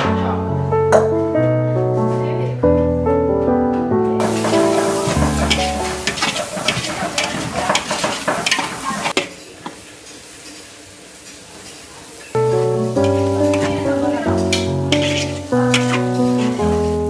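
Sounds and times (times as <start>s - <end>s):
music: 0.0s - 6.3s, 12.4s - 17.0s
metal spatula scraping a wok: 4.2s - 9.2s, 12.6s - 17.0s
aromatics sizzling: 4.2s - 17.0s.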